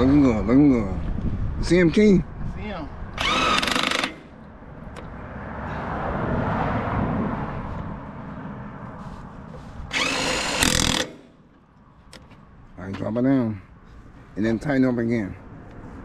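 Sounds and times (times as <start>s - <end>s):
power tool motor bursts: 3.2s - 4.4s, 9.9s - 11.4s.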